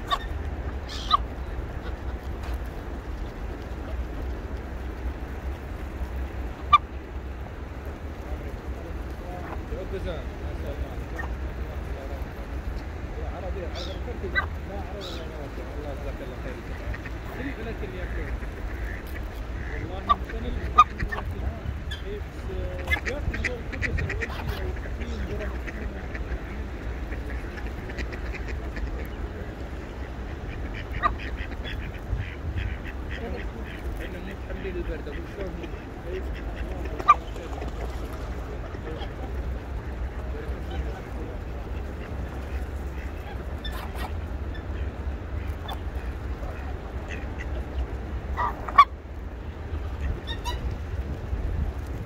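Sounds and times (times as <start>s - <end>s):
geese honking: 0.0s - 4.0s, 6.5s - 7.0s, 13.7s - 22.1s, 22.7s - 50.8s
ducks quacking: 0.0s - 52.0s
steady low rumble: 0.0s - 52.0s.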